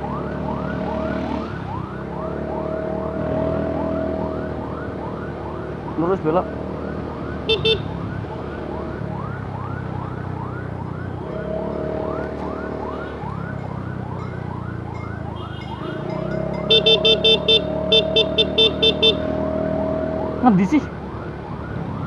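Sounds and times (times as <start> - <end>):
ambulance siren yelping: 0.0 - 22.0
motorcycle engine hum: 0.0 - 22.0
traffic: 0.0 - 22.0
horn tooting: 15.3 - 19.3.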